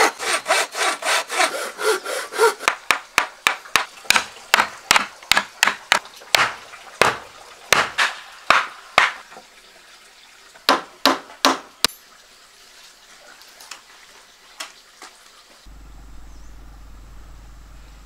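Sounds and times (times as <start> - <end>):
sharp knocks: 2.6 - 9.2.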